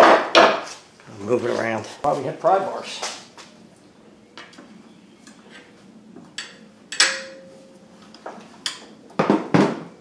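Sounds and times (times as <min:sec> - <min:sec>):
tools clinking against metal: 0:06.4 - 0:07.6
sharp ringing metal clank: 0:06.4 - 0:07.8.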